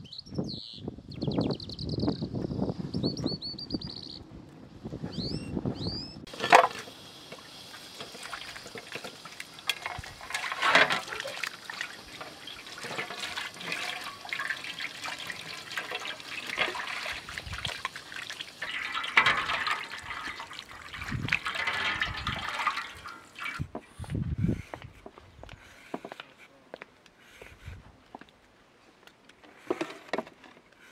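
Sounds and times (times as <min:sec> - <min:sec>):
water splashing onto metal tray: 0:06.3 - 0:23.7.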